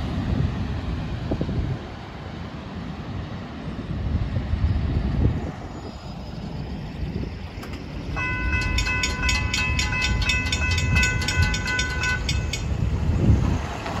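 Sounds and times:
cars driving across crossing: 0:05.4 - 0:14.0
railroad crossing bell ringing: 0:07.8 - 0:13.7.

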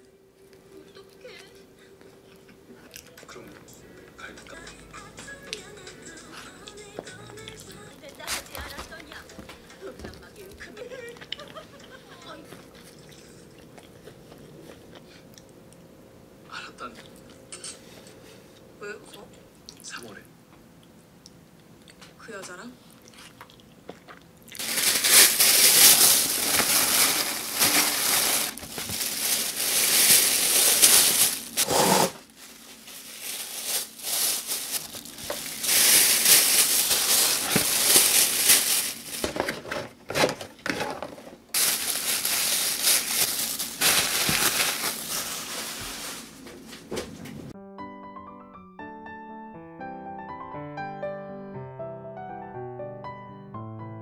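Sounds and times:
plastic bag crinkling: 0:24.5 - 0:46.4.

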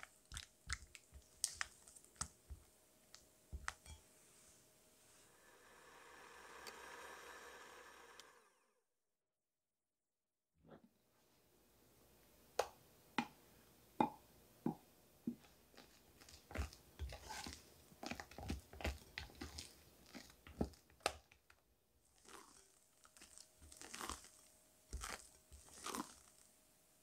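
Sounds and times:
wet squelching of cream: 0:00.0 - 0:03.8, 0:15.7 - 0:21.0, 0:22.1 - 0:26.5
spatula tapping glass bowl: 0:14.0 - 0:14.8.

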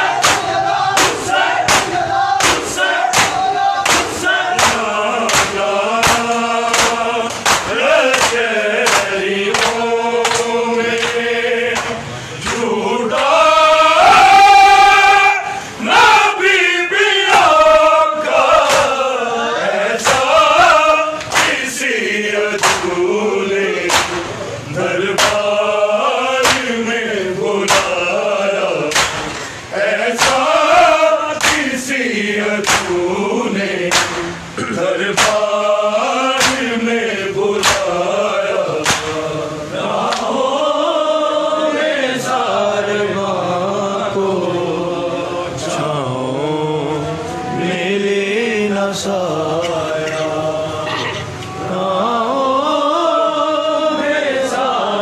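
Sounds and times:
men chanting in unison: 0:00.0 - 0:55.0
hand slaps on bare chests: 0:00.2 - 0:11.2, 0:11.8 - 0:13.3, 0:18.6 - 0:19.0, 0:20.0 - 0:20.3, 0:21.2 - 0:21.6, 0:22.6 - 0:23.0, 0:23.9 - 0:24.3, 0:25.2 - 0:25.5, 0:26.4 - 0:26.7, 0:27.7 - 0:28.0, 0:28.9 - 0:29.4, 0:30.2 - 0:30.5, 0:31.4 - 0:31.8, 0:32.6 - 0:33.0, 0:33.9 - 0:34.3, 0:35.1 - 0:35.5, 0:36.4 - 0:36.7, 0:37.6 - 0:37.9, 0:38.8 - 0:39.2.

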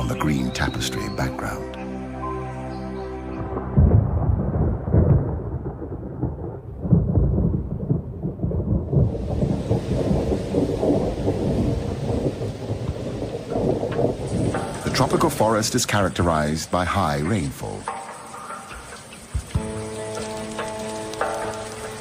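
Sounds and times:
steady rain: 0:00.0 - 0:22.0
deep rolling thunder: 0:03.4 - 0:16.4.

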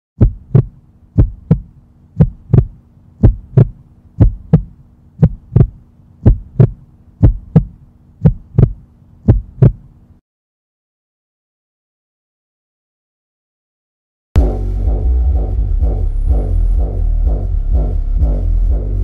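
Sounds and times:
heartbeat thumps: 0:00.2 - 0:09.9, 0:14.4 - 0:19.0
low steady hum: 0:00.2 - 0:10.2, 0:14.4 - 0:19.0.

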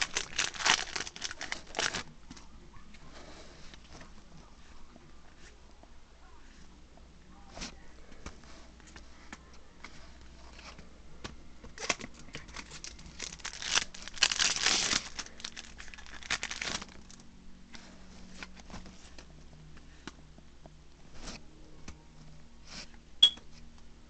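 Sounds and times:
foil wrapper crinkling and tearing: 0:00.0 - 0:02.1, 0:11.8 - 0:17.2.

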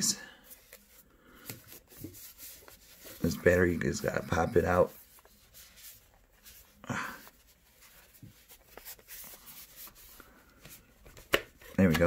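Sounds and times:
plastic handling sounds: 0:00.5 - 0:12.0.

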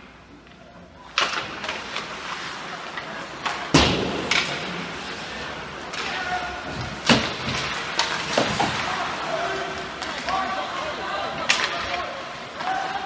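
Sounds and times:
hockey puck and stick knocks: 0:03.0 - 0:04.8, 0:05.9 - 0:08.9.

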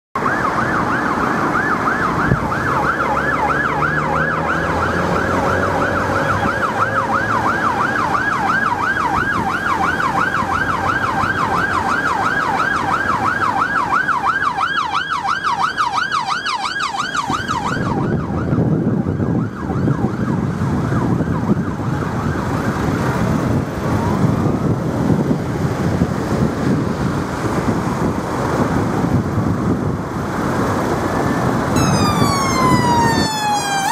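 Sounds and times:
police siren yelping: 0:00.2 - 0:23.1, 0:31.2 - 0:33.9
car engines and traffic: 0:00.2 - 0:33.9.

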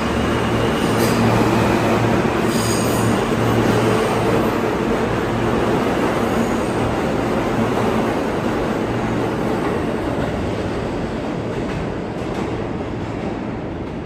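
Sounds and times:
train wheels rumbling on rail: 0:00.0 - 0:14.0.

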